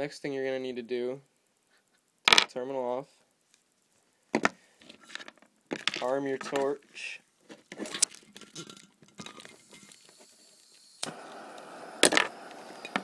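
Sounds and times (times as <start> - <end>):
gas torch clicks and rattles: 7.9 - 13.0
gas torch flame hissing: 9.3 - 13.0
torch ignition click: 10.7 - 13.0.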